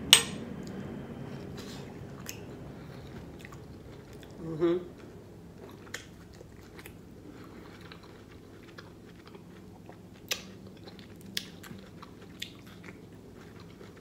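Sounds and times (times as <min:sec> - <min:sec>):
wet chewing mouth sounds: 0:01.4 - 0:14.0
sharp chewing clicks: 0:05.6 - 0:14.0.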